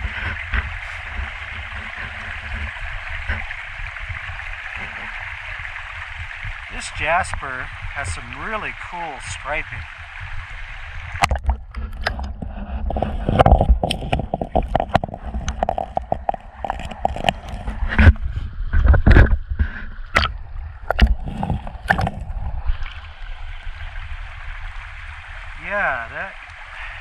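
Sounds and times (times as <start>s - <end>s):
rocks clacking together: 11.2s - 18.2s, 18.8s - 22.3s.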